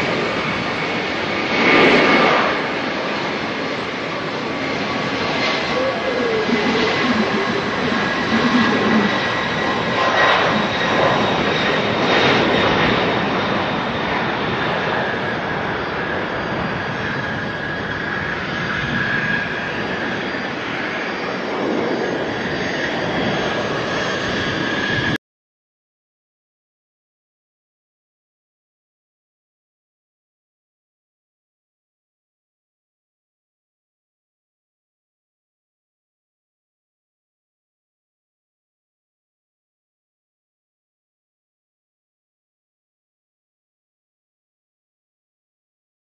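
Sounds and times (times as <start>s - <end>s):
jet engines roaring with whine: 0.0s - 25.2s.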